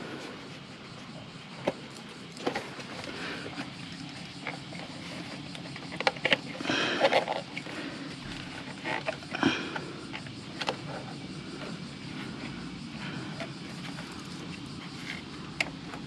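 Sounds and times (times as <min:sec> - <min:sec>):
plastic clicks and creaks: 0:01.6 - 0:09.4, 0:10.1 - 0:11.7.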